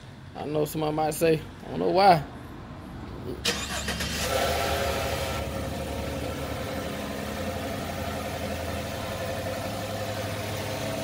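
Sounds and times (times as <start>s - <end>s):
truck engine idling: 3.5s - 11.0s.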